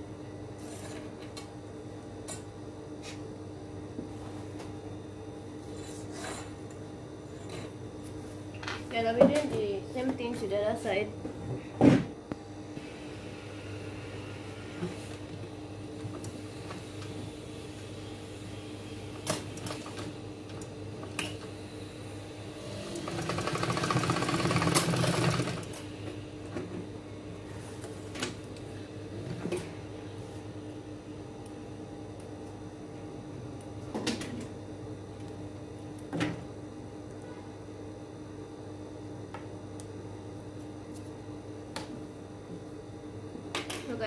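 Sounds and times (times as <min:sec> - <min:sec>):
steady low hum: 0:00.0 - 0:23.2, 0:24.9 - 0:44.0
sewing machine stitching: 0:22.8 - 0:25.7.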